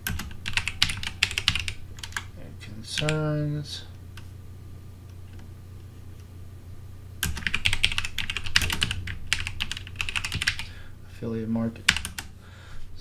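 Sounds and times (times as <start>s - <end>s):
typing on a computer keyboard: 0.0s - 2.3s, 7.2s - 10.7s, 11.9s - 12.3s
low steady hum: 0.0s - 13.0s.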